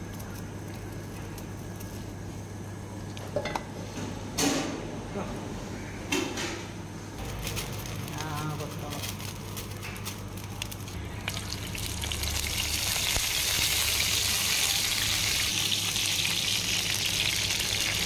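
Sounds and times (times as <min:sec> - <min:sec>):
leaves sizzling in hot oil: 0:10.6 - 0:18.0.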